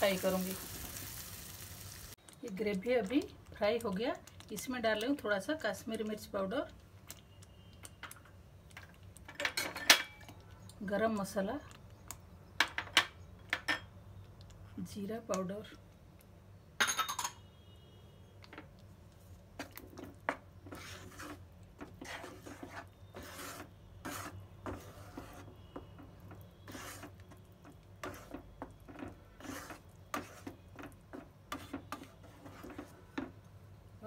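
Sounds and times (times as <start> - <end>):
wooden spatula scraping a pan: 19.6 - 33.3.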